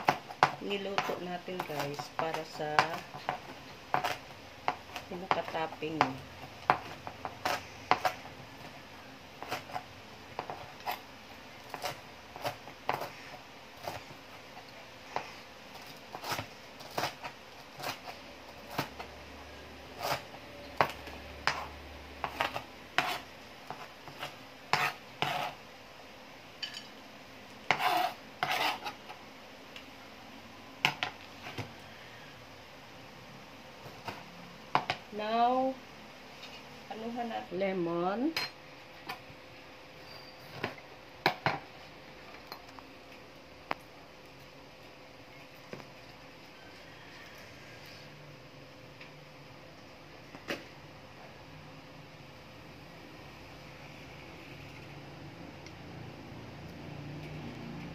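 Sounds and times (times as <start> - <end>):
knife chopping on cutting board: 0.0 - 8.3, 20.0 - 25.6, 27.7 - 29.0.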